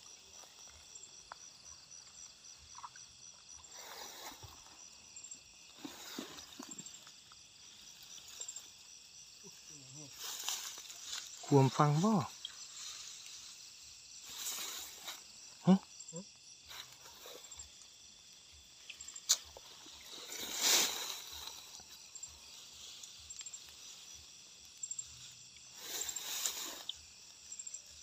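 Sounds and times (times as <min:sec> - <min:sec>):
grass rustling: 0:00.0 - 0:15.8, 0:16.6 - 0:28.0
faint high insect chirps: 0:00.0 - 0:28.0
footsteps through tall grass: 0:10.1 - 0:11.8, 0:18.6 - 0:28.0.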